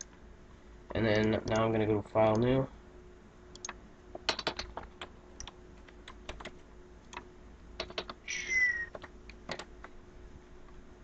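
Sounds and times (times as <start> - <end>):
keyboard keys clicking: 3.6 - 8.2, 8.9 - 10.0
squeak sliding down in pitch: 8.3 - 8.9.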